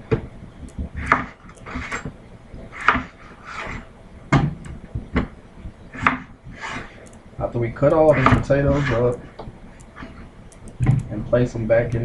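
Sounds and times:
knife cutting on wooden board: 1.0 - 2.1, 2.7 - 3.9, 6.0 - 7.0, 8.1 - 9.2.

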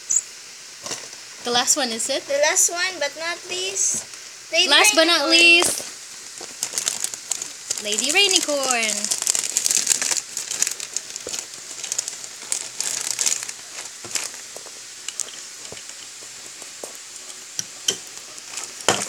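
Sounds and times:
plastic bag crinkling: 4.6 - 19.0.

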